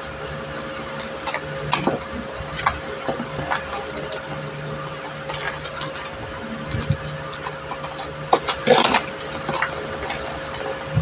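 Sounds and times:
faint steady hum: 0.0s - 11.0s
cardboard packaging crinkling: 5.1s - 10.8s.

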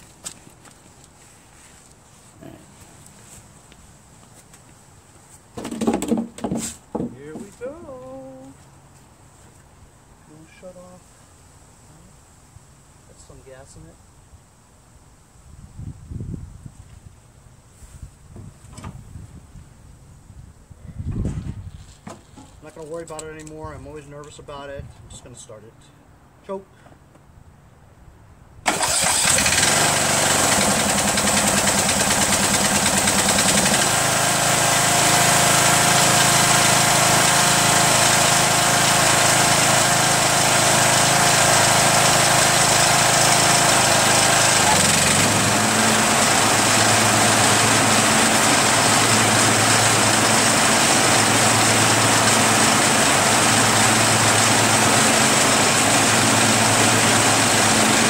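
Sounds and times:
lawn tractor engine starting and running: 28.6s - 58.0s.

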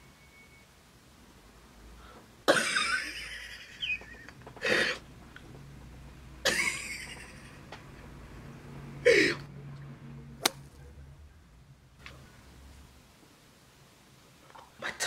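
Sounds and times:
woman coughing: 2.5s - 3.0s.

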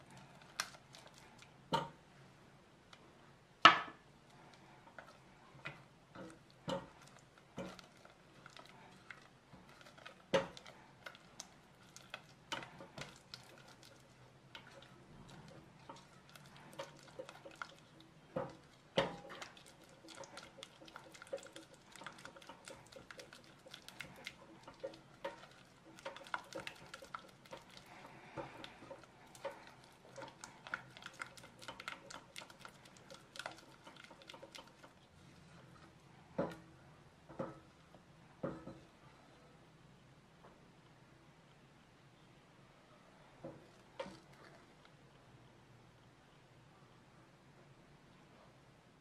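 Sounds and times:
spatula scraping a pot: 4.9s - 35.8s.

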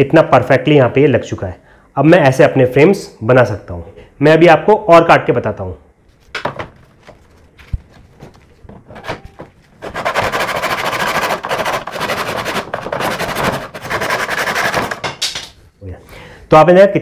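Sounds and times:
wood knocking in mitre box: 6.3s - 6.9s
hand saw cutting wood: 9.8s - 15.1s.

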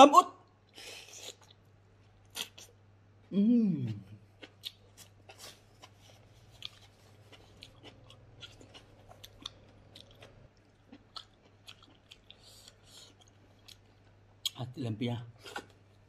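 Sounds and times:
low steady hum: 0.0s - 16.0s
chewing and biting: 4.4s - 14.6s.

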